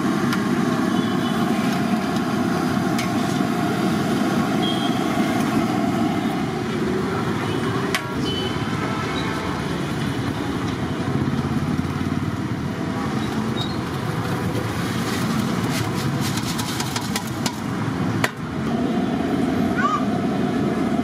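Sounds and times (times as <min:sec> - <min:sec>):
fritters clattering into steel tray: 0:15.1 - 0:17.6.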